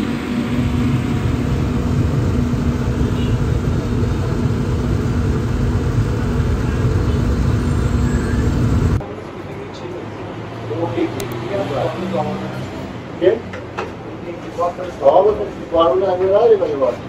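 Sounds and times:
low steady hum: 0.0 - 9.0
traffic rumble: 0.0 - 17.0.

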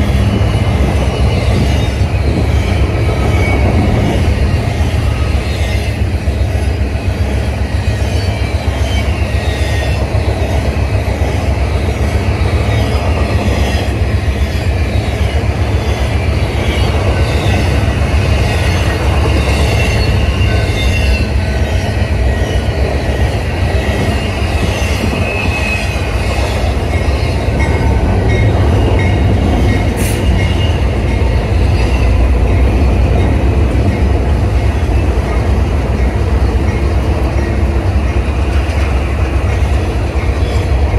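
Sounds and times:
diesel locomotives passing: 0.0 - 40.9
freight train rumbling: 0.0 - 40.9
steel wheels squealing on rails: 0.0 - 40.9.

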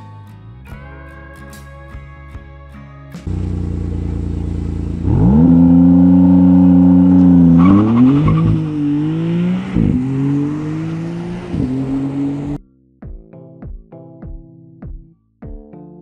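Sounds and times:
car engine idling: 3.3 - 11.1
car accelerating away: 3.3 - 12.6
car engine revving: 3.3 - 12.6.

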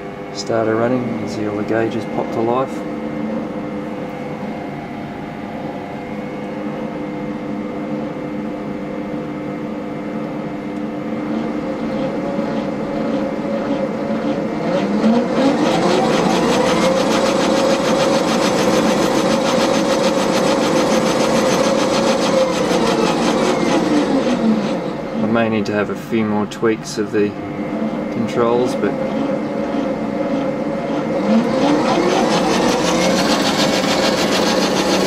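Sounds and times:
lathe motor whining: 0.0 - 6.8, 10.8 - 35.0.

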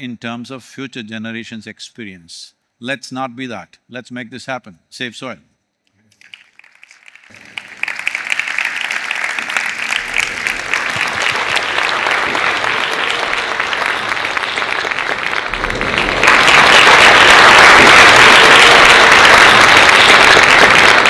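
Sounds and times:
audience applauding: 6.2 - 21.0.

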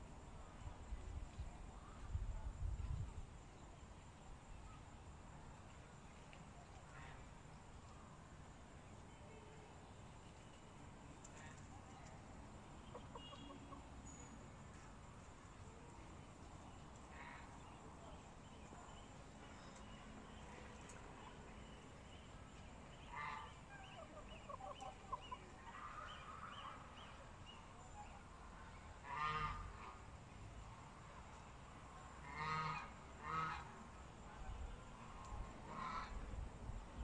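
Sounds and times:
chickens clucking: 12.8 - 13.9, 23.5 - 26.3
chickens squawking: 12.9 - 13.8.

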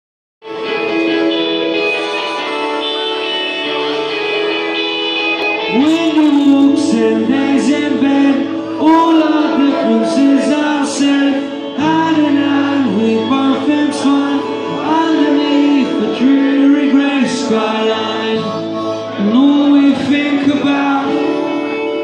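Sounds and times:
electric guitar: 0.4 - 22.0
strummed acoustic guitar: 0.5 - 22.0
man singing: 5.6 - 22.0.

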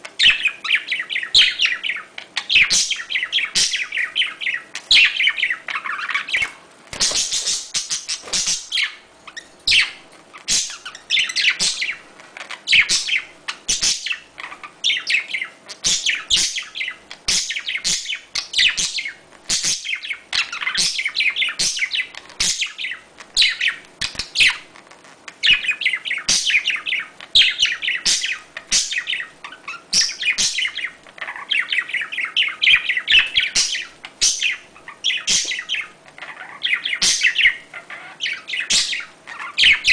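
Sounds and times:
budgerigars chirping: 0.0 - 24.7, 25.3 - 39.9.

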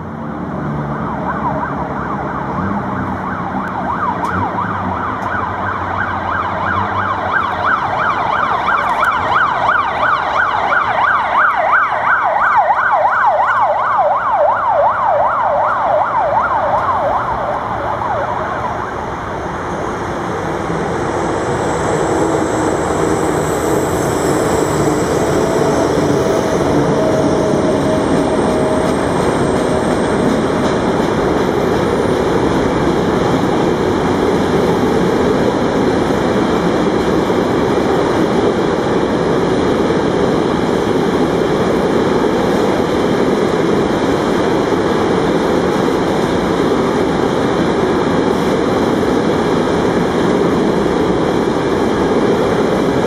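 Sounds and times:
ambulance siren wailing: 0.0 - 53.0
freight train rumbling past: 16.8 - 53.0.

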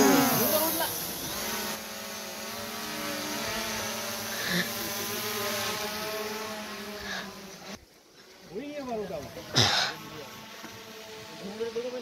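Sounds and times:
drone propellers humming: 0.0 - 7.9.

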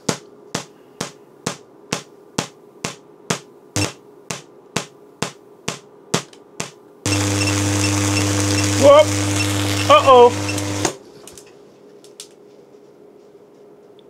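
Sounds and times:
faint steady hum: 0.0 - 14.0
tesla coil spark snaps: 6.6 - 11.4.

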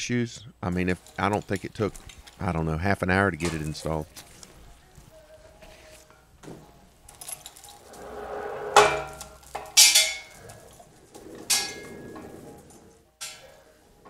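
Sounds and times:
crane chain and hook clanking: 1.0 - 2.5.

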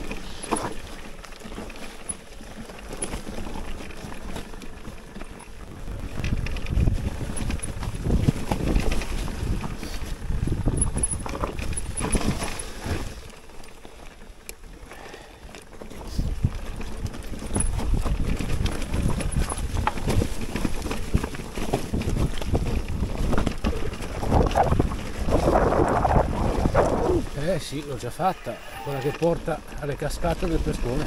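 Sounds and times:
mountain bike knocks and rattles: 0.0 - 14.0, 15.6 - 27.0.

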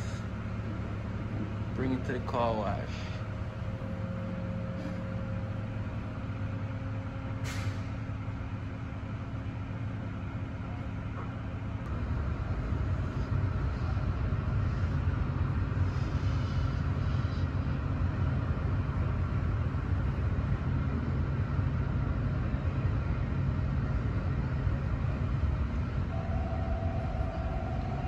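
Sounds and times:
car wash low rumble: 0.0 - 28.0
short steady tone: 26.1 - 28.0.

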